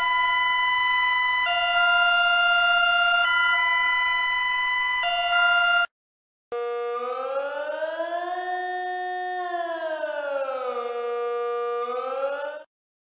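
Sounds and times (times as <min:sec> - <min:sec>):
hi-lo emergency alert tone: 0:00.0 - 0:05.9.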